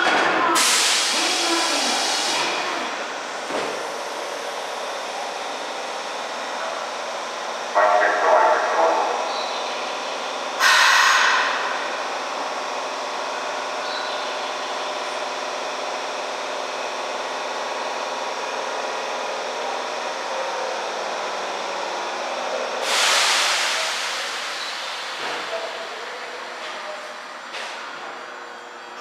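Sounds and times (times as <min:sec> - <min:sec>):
train electrical hum: 0:00.0 - 0:29.0
air release hiss: 0:00.6 - 0:02.5, 0:10.6 - 0:11.5, 0:22.8 - 0:24.9.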